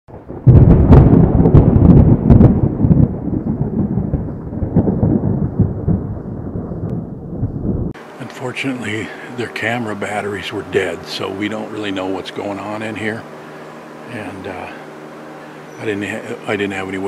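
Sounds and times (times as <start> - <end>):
thunder clap and rumble: 0.1 - 8.0.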